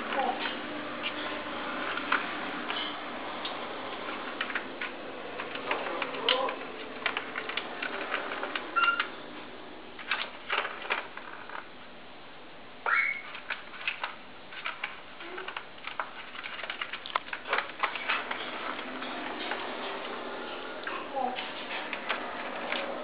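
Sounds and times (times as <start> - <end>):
ball rattling in plastic track: 4.0 - 9.1, 10.0 - 11.7, 13.2 - 20.2, 21.3 - 23.0.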